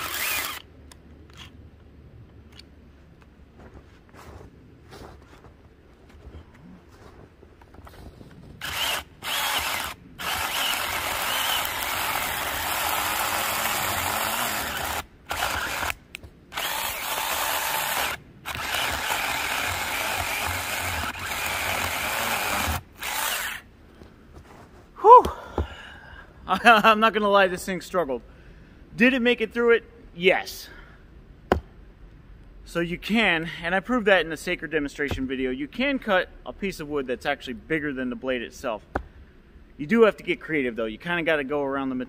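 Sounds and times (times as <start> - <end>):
chainsaw cutting wood: 0.0 - 0.6, 8.6 - 23.7.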